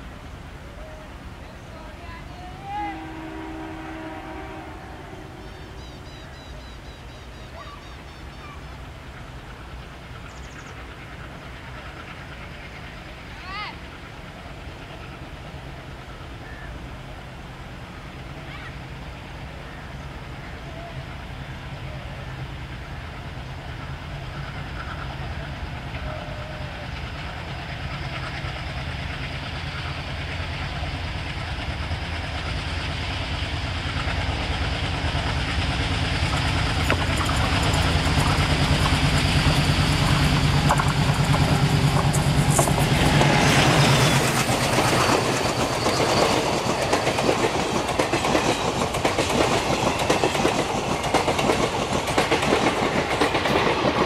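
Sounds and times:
diesel locomotive engine rumble: 0.0s - 54.0s
train wheels clattering: 23.7s - 54.0s.

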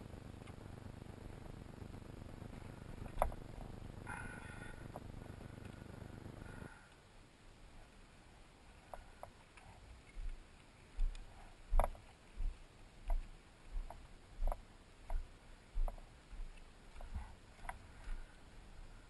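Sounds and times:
footsteps walking: 9.7s - 18.4s.

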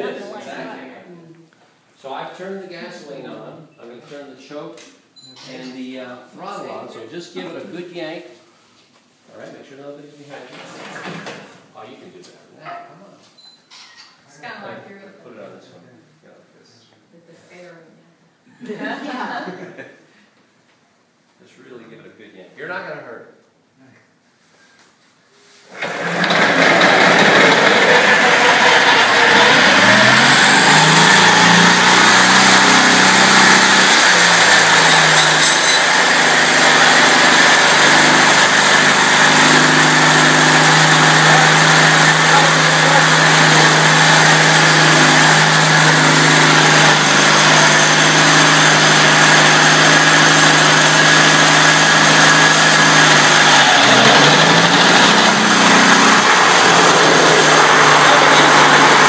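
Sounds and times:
small gasoline engine running loud: 25.7s - 59.0s.

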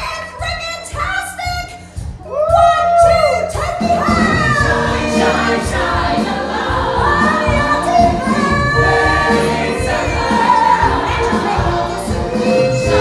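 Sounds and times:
musical accompaniment: 1.8s - 13.0s
choir singing: 3.9s - 13.0s
woman singing into microphone: 7.0s - 13.0s.

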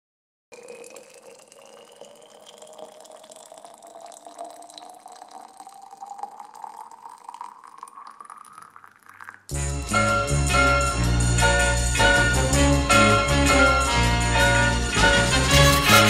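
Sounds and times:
liquid pouring into a mug: 0.5s - 9.6s.

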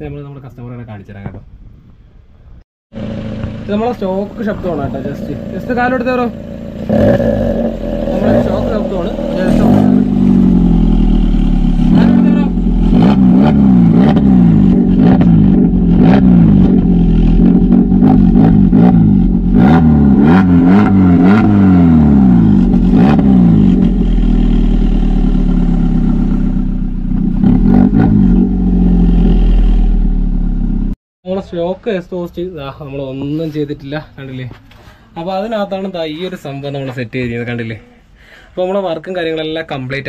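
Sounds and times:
engine idling: 2.9s - 19.6s
car engine revving: 2.9s - 31.0s
exhaust cracks: 2.9s - 31.0s.

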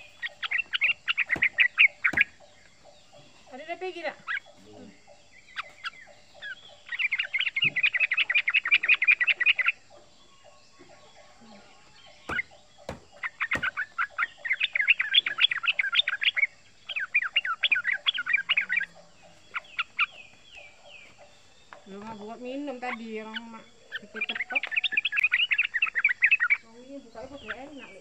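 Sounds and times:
bird chattering song: 0.0s - 28.0s.

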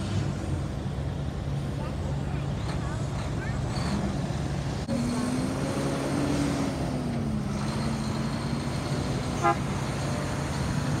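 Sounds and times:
short truck horn toot: 9.4s - 9.7s.

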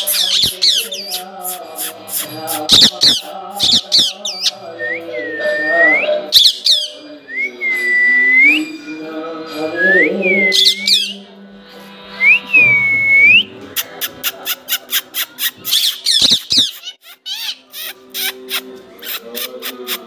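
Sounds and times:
parakeet sharp squawks: 0.0s - 4.5s, 14.8s - 19.6s.

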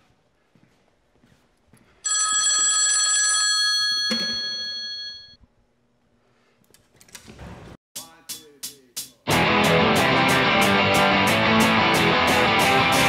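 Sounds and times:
telephone bell ringing: 2.0s - 5.4s.

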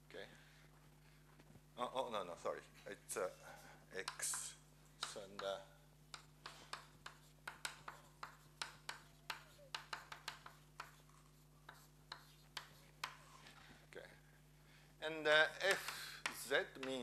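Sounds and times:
steady low hum: 0.0s - 17.0s
chalk tapping and scratching: 4.0s - 13.6s, 15.6s - 17.0s.

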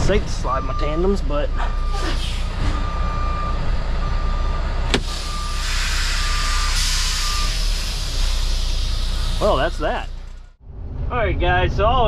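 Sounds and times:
truck reversing alarm beeping: 0.0s - 10.6s
diesel engine idling: 0.0s - 10.7s
air hiss: 5.0s - 9.8s.

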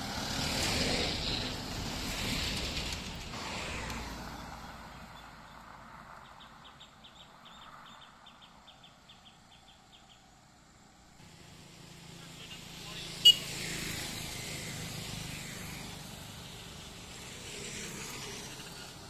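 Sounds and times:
truck road noise: 0.0s - 6.6s
vehicle engine hum: 0.0s - 19.0s
bird chirping: 6.2s - 10.4s.

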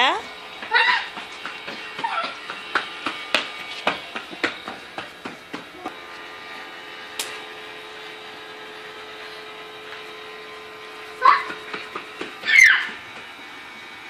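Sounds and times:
toy motor whirring: 12.4s - 14.0s.

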